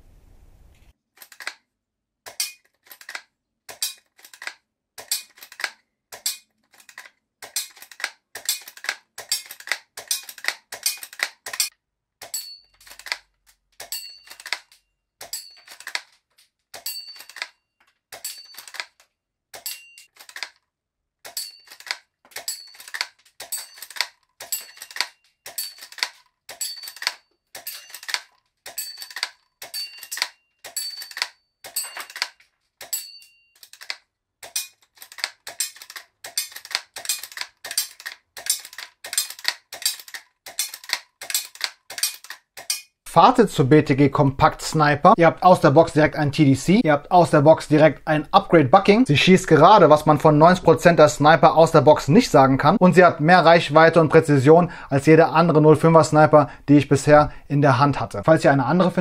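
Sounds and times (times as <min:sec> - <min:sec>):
sharp metallic clicks: 0:01.2 - 0:01.6, 0:02.2 - 0:20.6, 0:21.2 - 0:43.2.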